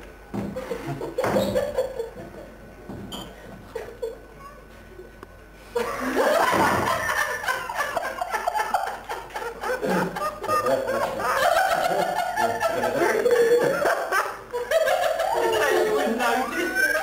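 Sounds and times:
group of people laughing: 5.8s - 17.0s.

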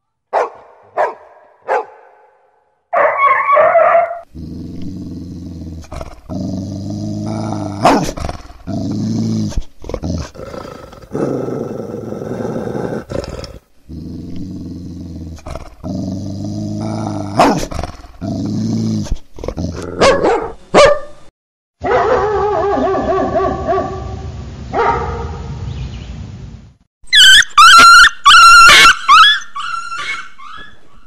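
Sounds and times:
dog barking: 0.3s - 4.2s, 20.0s - 21.2s, 21.8s - 24.1s, 24.8s - 25.5s
dog growling: 4.2s - 20.2s.

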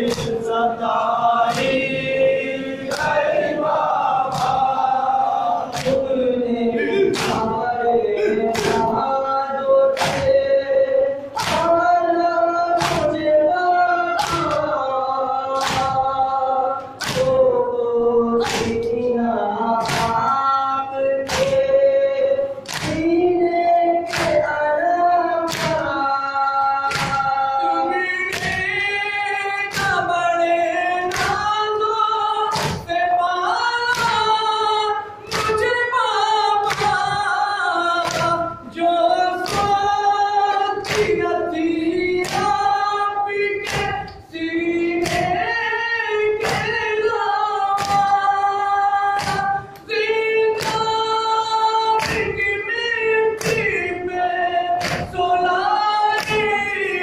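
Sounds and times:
men singing lament in chorus: 0.0s - 57.0s
hands slapping chests: 1.4s - 2.2s, 2.9s - 6.1s, 7.1s - 7.5s, 8.5s - 9.0s, 10.0s - 10.4s, 11.4s - 11.8s, 12.8s - 13.3s, 15.6s - 16.0s, 17.0s - 17.5s, 18.4s - 19.0s, 21.3s - 21.7s, 22.6s - 23.1s, 24.1s - 24.4s, 25.5s - 25.9s, 26.8s - 27.4s, 32.5s - 33.0s, 35.3s - 35.7s, 36.6s - 37.2s, 38.0s - 38.4s, 39.4s - 39.9s, 40.8s - 41.2s, 43.6s - 44.2s, 46.4s - 46.8s, 47.8s - 48.2s, 49.2s - 49.9s, 50.6s - 51.0s, 52.0s - 52.4s, 54.8s - 55.2s.

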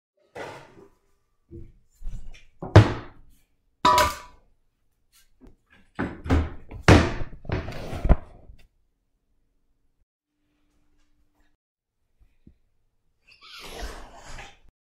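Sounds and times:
metal bowl clunking on countertop: 3.9s - 4.4s.

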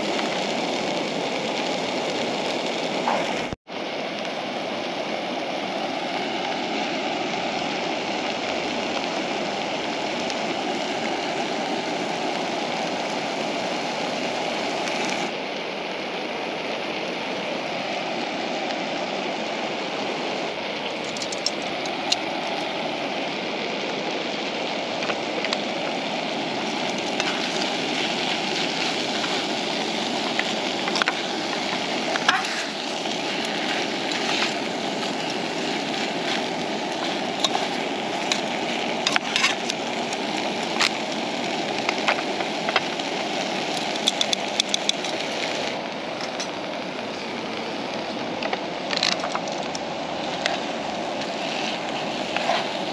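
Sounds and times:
chicken sizzling in frying pan: 0.0s - 3.6s, 20.8s - 47.8s, 49.1s - 52.9s.

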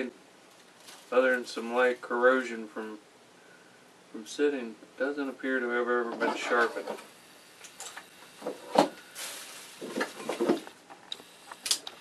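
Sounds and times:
plastic bag rustling: 0.5s - 2.1s, 8.4s - 10.8s.

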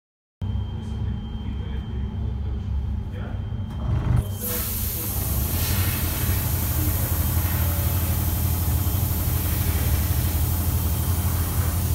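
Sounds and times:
low machine hum: 0.4s - 11.9s
compressed air hissing from nozzle: 4.4s - 11.9s.

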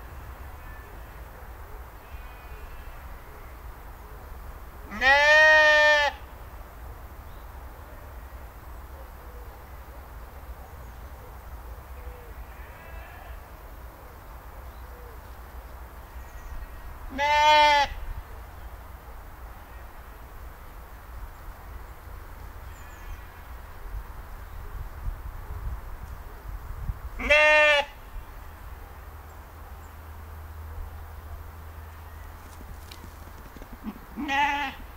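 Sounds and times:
sheep bleating: 4.9s - 6.2s, 12.4s - 13.5s, 17.1s - 18.0s, 27.2s - 28.0s, 33.8s - 34.9s.

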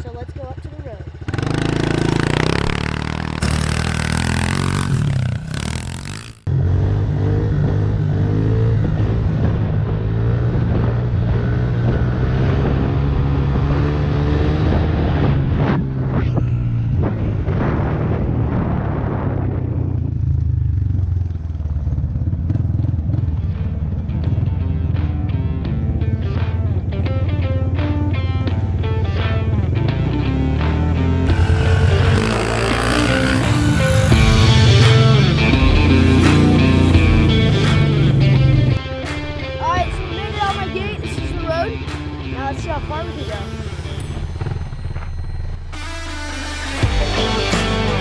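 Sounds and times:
pit bike engine running: 0.0s - 45.5s
background music: 23.9s - 48.0s.

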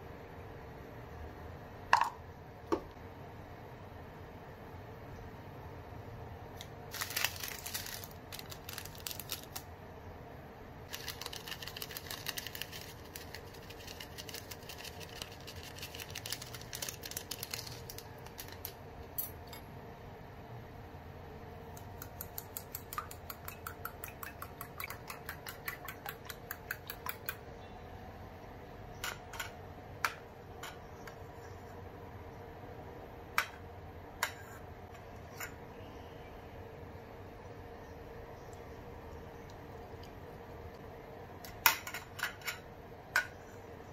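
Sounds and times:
seasoning shaker rattling: 6.9s - 9.7s, 10.9s - 19.4s, 22.0s - 27.4s.

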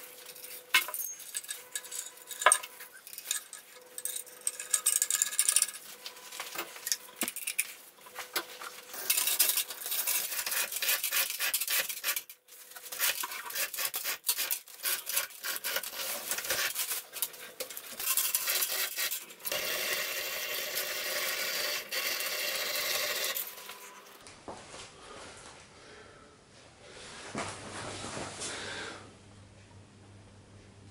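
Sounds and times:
metal tools clinking and scraping: 0.2s - 19.6s, 23.2s - 24.2s.

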